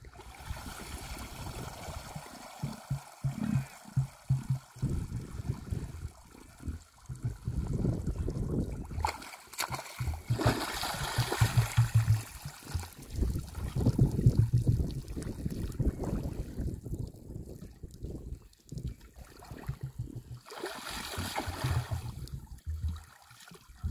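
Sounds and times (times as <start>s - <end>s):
muddy water sloshing: 0.0s - 16.6s, 18.8s - 23.9s
low pulsing sounds: 1.2s - 16.9s, 18.8s - 23.9s
sharp splashes: 8.9s - 13.8s, 19.4s - 23.6s.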